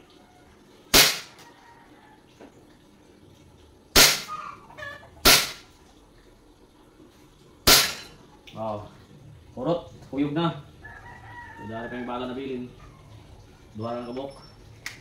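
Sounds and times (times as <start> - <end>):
airsoft pistol shots: 0.9 - 1.4, 4.0 - 4.3, 5.2 - 5.6, 7.7 - 8.1.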